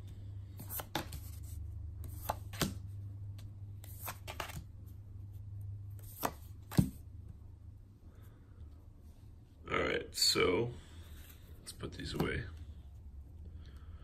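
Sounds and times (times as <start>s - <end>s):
steady low hum: 0.0s - 14.0s
cards slapping on wood: 0.6s - 1.3s, 2.0s - 2.8s, 6.0s - 7.0s.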